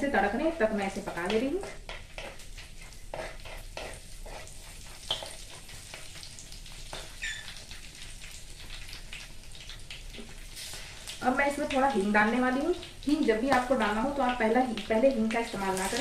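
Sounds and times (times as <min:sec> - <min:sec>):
spices sizzling in hot oil: 0:00.0 - 0:16.0.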